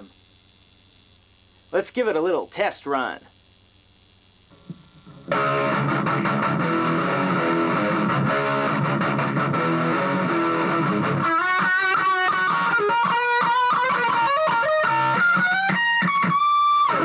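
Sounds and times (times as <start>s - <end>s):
electric guitar playing: 4.5s - 17.0s.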